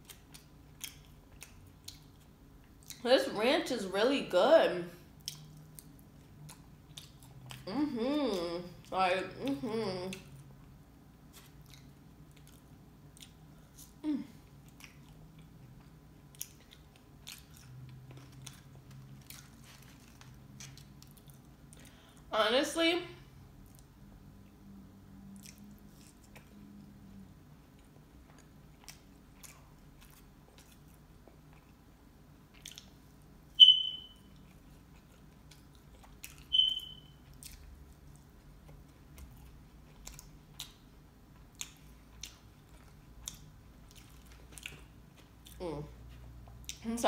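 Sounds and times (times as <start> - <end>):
soft chewing and mouth clicks: 0.0 - 3.0, 5.1 - 22.3, 23.4 - 33.6, 34.2 - 46.9
short high squeaks: 33.6 - 34.2, 36.5 - 37.1.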